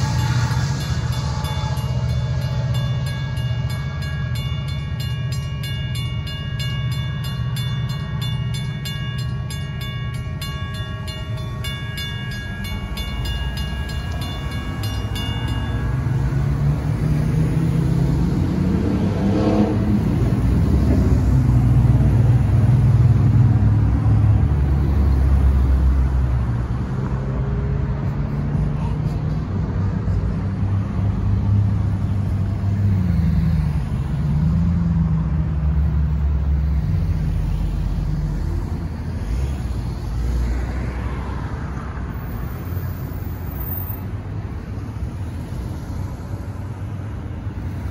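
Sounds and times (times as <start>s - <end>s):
railroad crossing bell ringing: 0.0s - 18.2s
low rumble: 0.0s - 28.0s
vehicles driving past: 0.0s - 47.9s.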